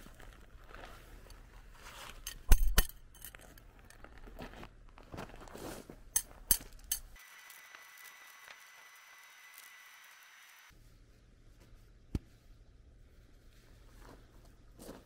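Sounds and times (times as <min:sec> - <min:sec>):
gravel crunching underfoot: 0:00.0 - 0:02.2, 0:03.3 - 0:06.8, 0:13.8 - 0:15.0.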